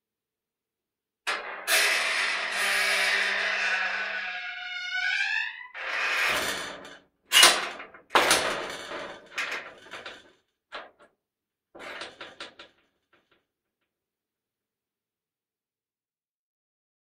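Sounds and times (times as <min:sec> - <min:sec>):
metal door scraping: 0:01.3 - 0:10.0.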